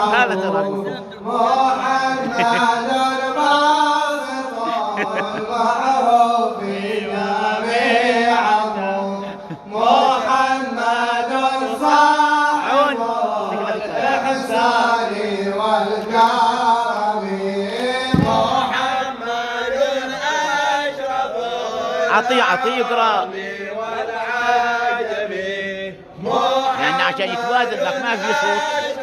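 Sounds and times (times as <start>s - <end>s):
men chanting melodically: 0.0s - 29.0s
low thump: 18.1s - 18.9s.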